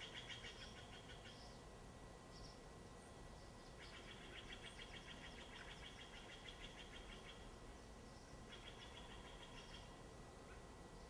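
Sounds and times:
songbird trilling: 3.7s - 7.5s, 8.1s - 10.0s.

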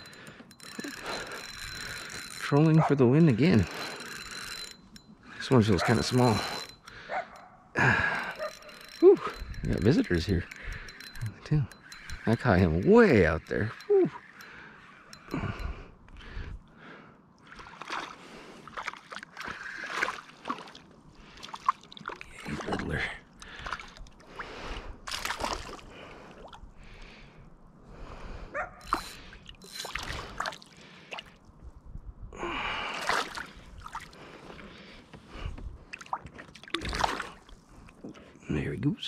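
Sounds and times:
heavy breathing: 0.0s - 2.4s, 6.0s - 9.6s
fish splashing: 25.1s - 26.6s, 33.0s - 34.2s, 35.9s - 37.6s.

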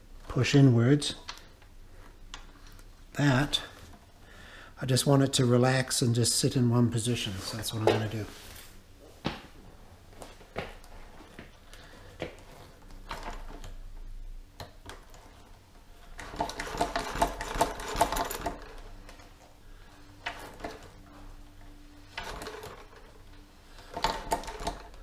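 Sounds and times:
rapid rattle: 16.1s - 18.9s
motorcycle forks knocking and clunking: 16.2s - 18.8s.

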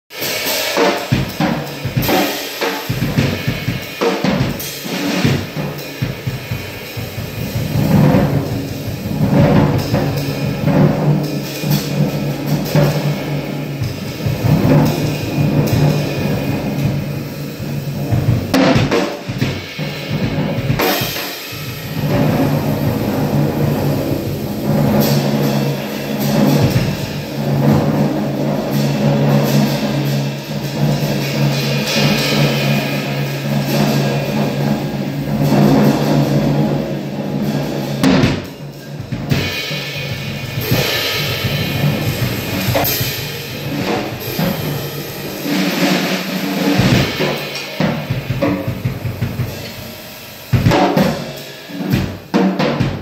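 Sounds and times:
music with drum kit: 0.0s - 53.0s
sustained low tones: 6.9s - 18.7s, 21.6s - 50.7s.

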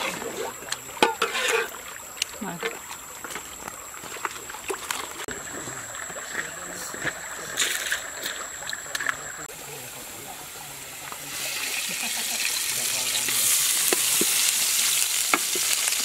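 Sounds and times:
metal pans and ladle clinking: 0.0s - 1.9s
water running over rocks: 0.0s - 16.0s.

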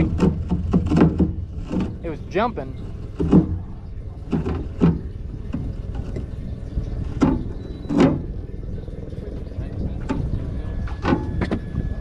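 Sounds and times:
knocks on boat: 0.0s - 2.0s, 3.2s - 3.7s, 4.3s - 6.3s
wind and water rumble: 0.0s - 12.0s.

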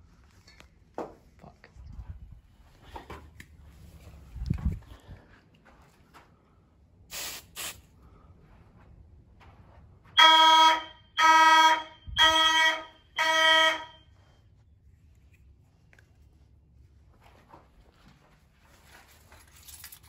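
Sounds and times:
aerosol spray hisses: 7.1s - 7.8s
fire alarm horn pulses: 10.1s - 14.5s.

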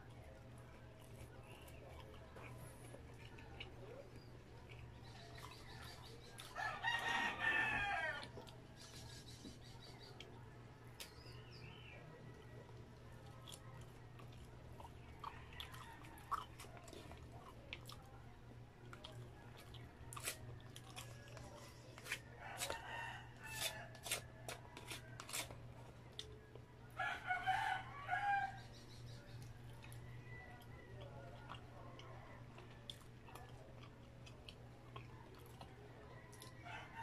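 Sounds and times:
chewing: 0.0s - 37.0s
rooster crowing: 6.5s - 8.4s, 22.4s - 24.0s, 27.0s - 28.6s, 36.3s - 37.0s.

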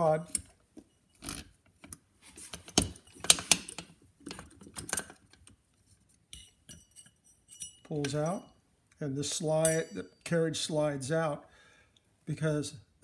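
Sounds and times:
light metallic rings: 6.3s - 8.6s, 9.6s - 10.4s.

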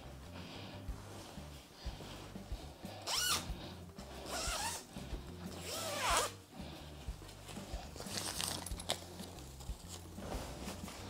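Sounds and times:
zip being pulled: 3.0s - 3.5s, 4.2s - 4.9s, 5.5s - 6.4s.

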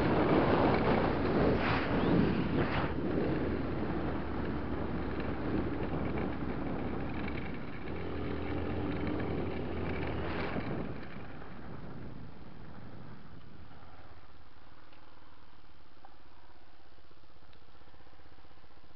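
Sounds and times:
motorcycle engine running: 0.0s - 13.3s
wind on microphone: 0.0s - 14.0s.

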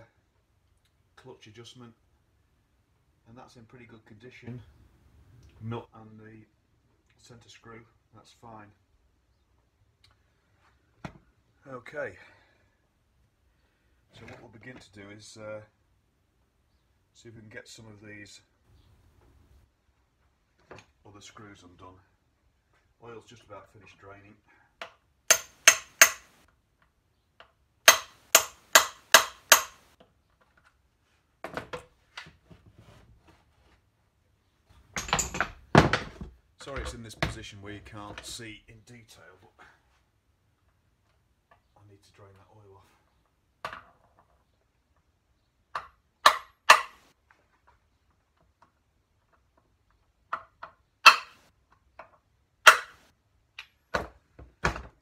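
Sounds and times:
metallic tool clicks and rattles: 25.3s - 26.3s
hammer striking metal driver: 25.3s - 26.4s, 27.9s - 29.9s, 51.1s - 51.4s, 52.7s - 53.0s.

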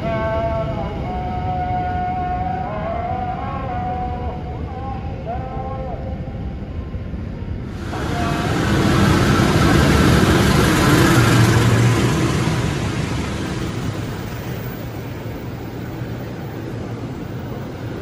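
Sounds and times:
train coaches rolling past: 0.0s - 18.0s
locomotive engine passing: 7.5s - 18.0s.

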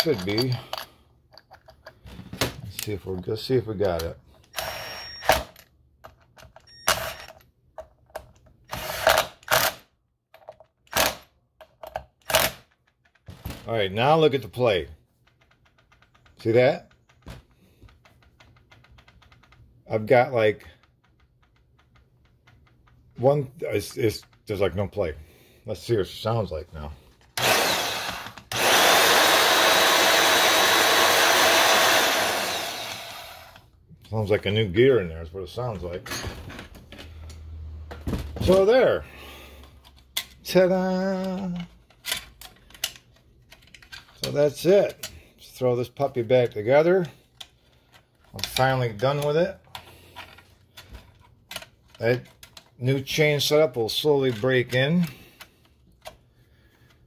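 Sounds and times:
cordless drill driving screws: 4.5s - 5.5s, 6.8s - 7.3s, 8.7s - 9.8s, 27.4s - 33.7s
band saw motor running: 27.4s - 33.6s.

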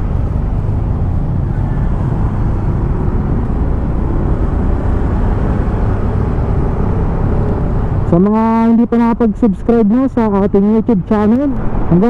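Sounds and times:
road noise: 0.0s - 12.0s.

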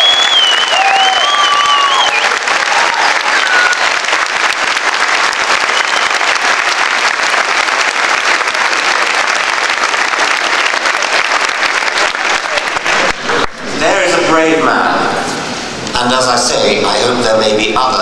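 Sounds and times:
whistle: 0.0s - 3.8s, 5.7s - 6.3s
audience applauding: 0.0s - 13.8s.

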